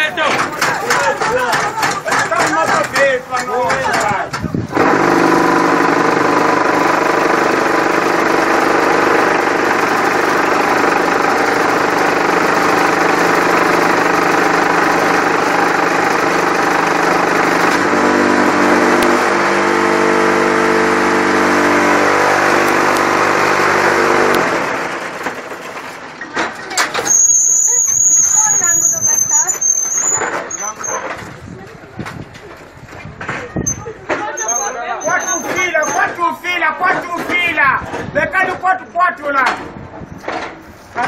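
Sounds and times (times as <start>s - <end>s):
block making machine drone: 0.0s - 31.2s
deeper mechanical drone: 4.7s - 25.6s.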